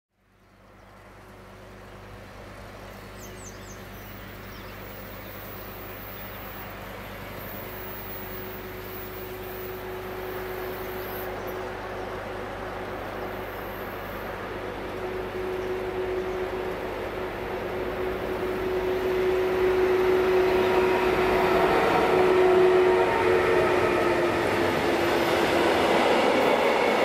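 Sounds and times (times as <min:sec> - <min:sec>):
freight train rumbling: 0:00.6 - 0:27.0
bird chirping: 0:02.9 - 0:06.7.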